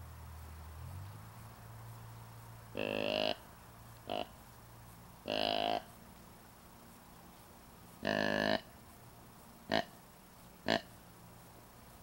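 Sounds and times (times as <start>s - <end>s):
deer grunt call: 2.8s - 3.4s, 4.1s - 4.3s, 5.2s - 5.9s, 8.0s - 8.7s.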